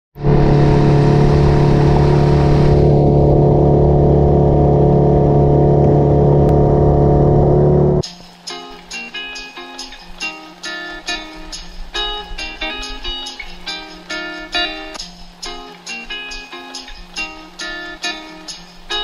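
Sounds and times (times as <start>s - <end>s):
water and wind rushing: 0.2s - 7.2s
outboard motor running: 0.2s - 8.0s.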